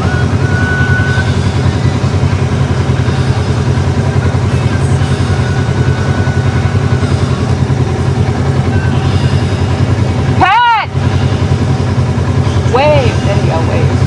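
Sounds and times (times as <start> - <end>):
off-road vehicle engine running: 0.0 - 14.0.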